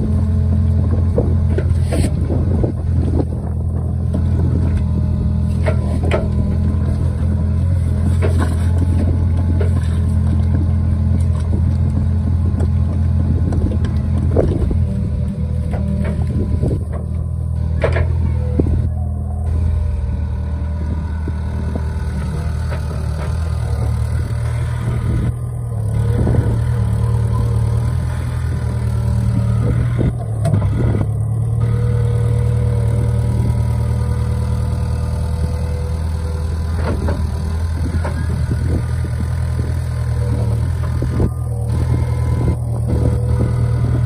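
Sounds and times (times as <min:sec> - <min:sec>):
diesel engine under load: 0:00.0 - 0:44.0.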